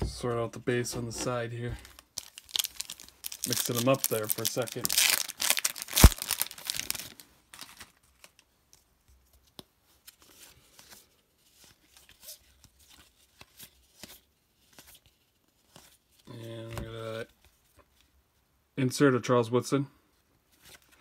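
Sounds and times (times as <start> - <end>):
cardboard cards being flipped: 0.9 - 17.2
foil wrapper crinkling: 1.8 - 8.3.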